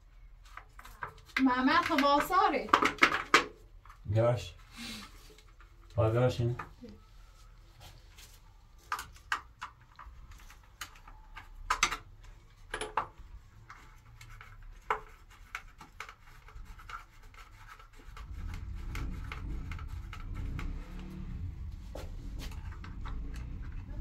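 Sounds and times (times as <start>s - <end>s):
low rumble: 18.2s - 24.0s.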